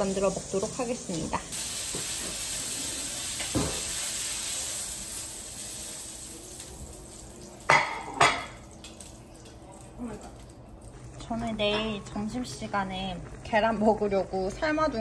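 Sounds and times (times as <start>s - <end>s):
food sizzling in a hot pan: 0.0s - 8.6s.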